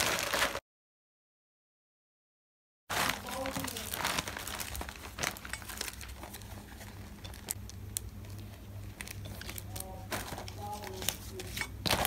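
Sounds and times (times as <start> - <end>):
plastic packaging crinkling: 0.0 - 0.6, 2.9 - 12.0
low steady hum: 2.9 - 12.0.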